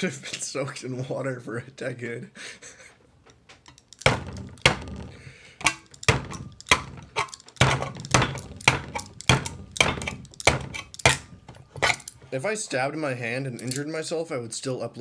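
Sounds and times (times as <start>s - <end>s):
knife stabbing steel can lid: 6.6s - 12.1s.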